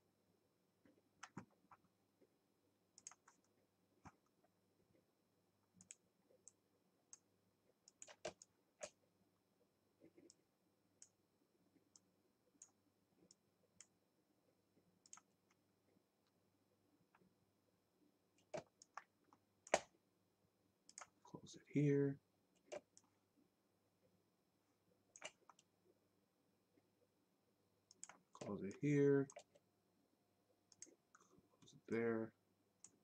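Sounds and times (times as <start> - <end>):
faint steady hum: 0.0 - 33.0
computer mouse clicks: 1.2 - 1.8, 3.0 - 4.3, 5.8 - 9.0, 15.0 - 15.6, 18.4 - 19.9, 20.9 - 21.2, 22.6 - 23.1, 25.1 - 25.7, 27.9 - 29.6, 30.7 - 31.3, 32.8 - 33.0.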